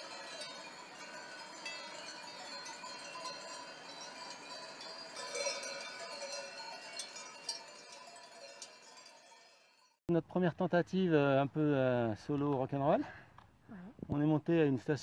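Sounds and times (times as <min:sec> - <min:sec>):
metal bells ringing: 0:00.0 - 0:10.0.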